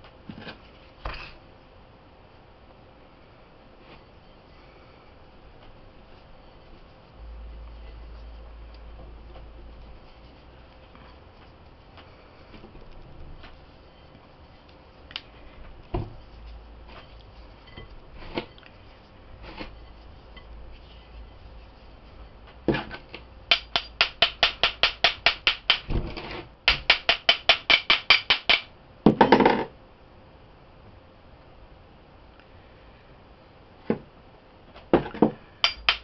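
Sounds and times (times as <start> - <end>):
loud scrape: 19.4 - 21.4
rapid tapping on metal mold: 23.5 - 25.9, 26.7 - 28.7, 35.0 - 36.0.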